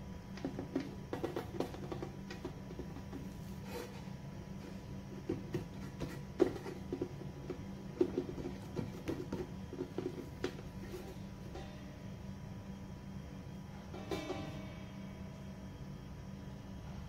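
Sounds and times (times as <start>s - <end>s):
steady low hum: 0.0s - 17.0s
hands knocking and rubbing dough: 0.3s - 11.8s.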